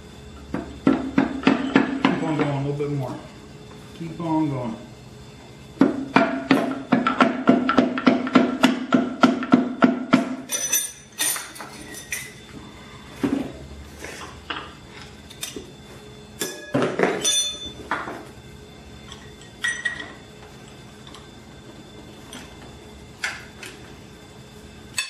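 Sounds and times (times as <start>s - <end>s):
metallic clinks and clanks: 10.5s - 12.4s, 16.4s - 17.8s.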